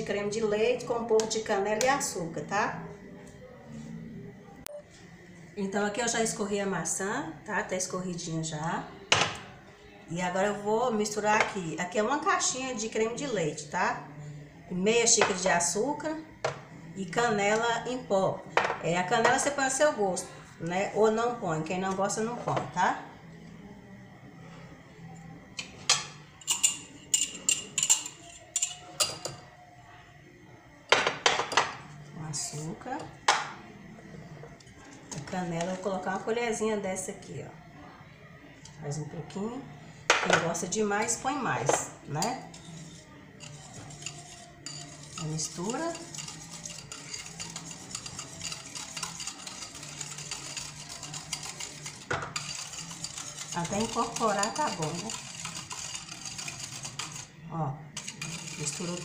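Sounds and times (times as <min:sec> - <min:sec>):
utensil clinking on ceramic cups: 0:26.0 - 0:29.4, 0:41.7 - 0:57.3, 0:58.0 - 0:59.0
whisk clicking against bowl: 0:42.2 - 0:57.3, 0:58.0 - 0:59.0.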